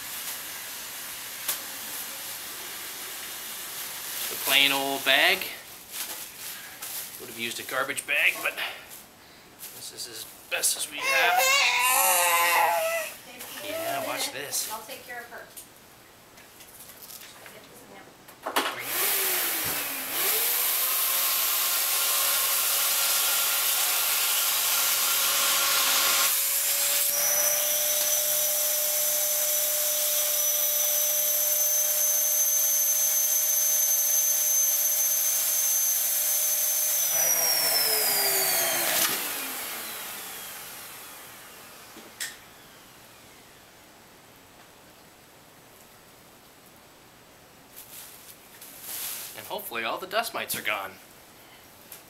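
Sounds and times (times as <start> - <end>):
vacuum cleaner motor whining: 18.8 - 23.8, 24.5 - 43.4.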